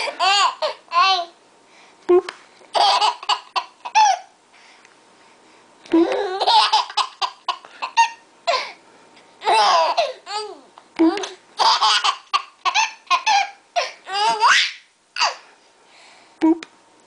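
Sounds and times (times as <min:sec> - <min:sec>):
baby laughing: 0:00.0 - 0:01.3, 0:02.7 - 0:04.3, 0:06.0 - 0:08.2, 0:09.4 - 0:15.4.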